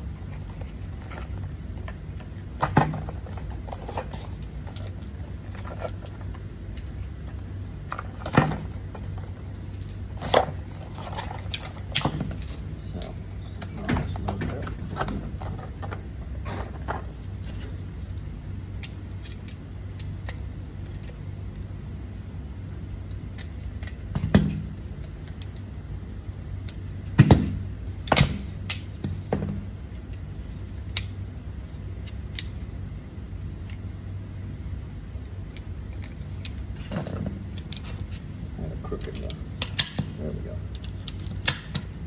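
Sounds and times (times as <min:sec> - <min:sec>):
steady low hum: 0:00.0 - 0:42.0.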